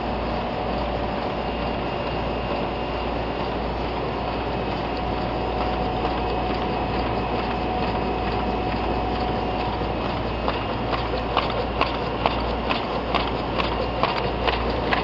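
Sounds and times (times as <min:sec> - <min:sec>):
printing press running: 0:00.0 - 0:15.0
hissing air pumps: 0:00.3 - 0:15.0.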